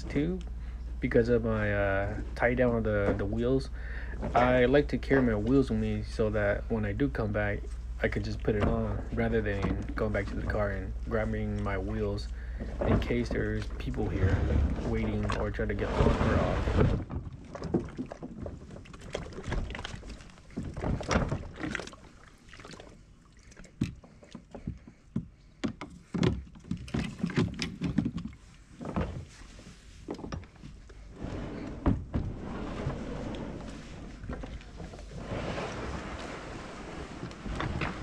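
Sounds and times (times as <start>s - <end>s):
fishing gear knocking and rattling: 23.7s - 29.3s.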